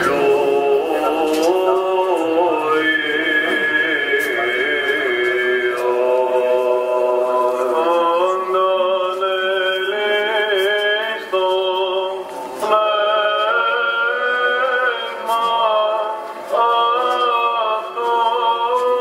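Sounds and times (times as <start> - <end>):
steady held drone note: 0.0 - 15.2
voices chanting: 0.0 - 15.8.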